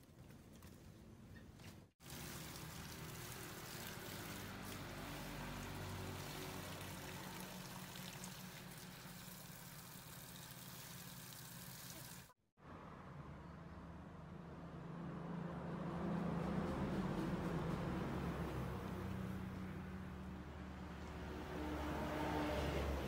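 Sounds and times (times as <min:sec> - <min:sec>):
water spraying on plants: 0:02.0 - 0:12.4.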